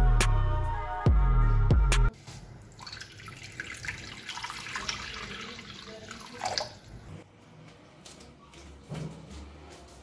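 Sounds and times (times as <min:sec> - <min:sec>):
water pouring into metal wok: 0:02.8 - 0:07.0.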